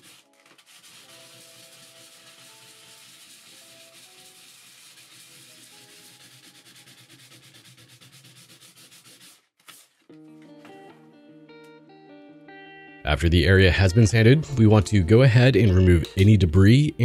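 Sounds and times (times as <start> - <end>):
faint background music: 0.0 - 7.7, 10.1 - 17.0
sandpaper scrubbing a bathtub: 0.0 - 10.1.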